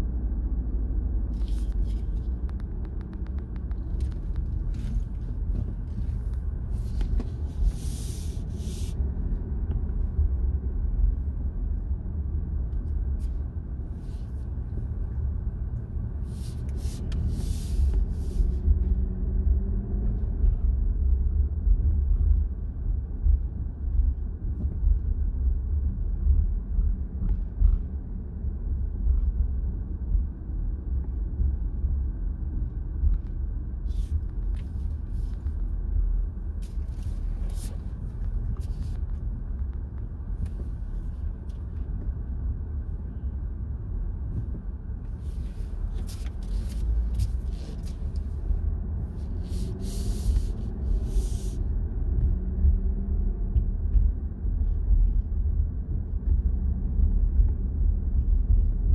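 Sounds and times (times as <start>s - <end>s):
car engine and road noise: 0.0s - 58.9s
short hissing noises: 7.7s - 9.0s, 49.4s - 51.6s.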